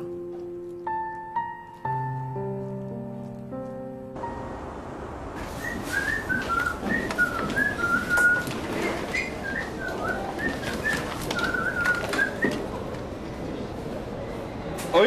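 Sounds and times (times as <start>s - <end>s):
person whistling a tune: 5.6s - 8.5s, 9.1s - 12.6s.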